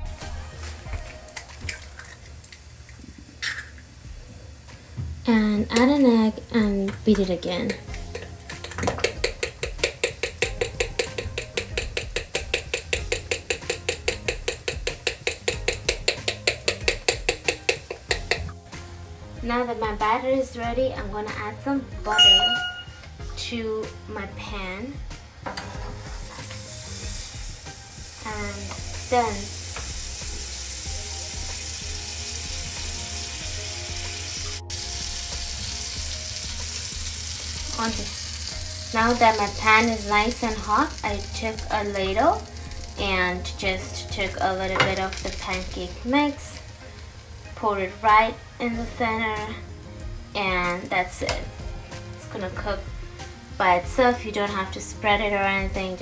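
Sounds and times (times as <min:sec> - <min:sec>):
butter sizzling in frying pan: 0:00.8 - 0:19.1, 0:25.2 - 0:54.0
fork beating batter in a bowl: 0:08.0 - 0:18.5.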